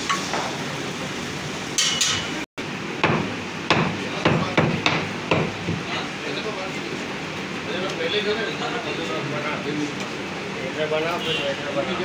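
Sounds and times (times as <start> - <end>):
cleaver chopping meat and bone: 3.0 - 5.8.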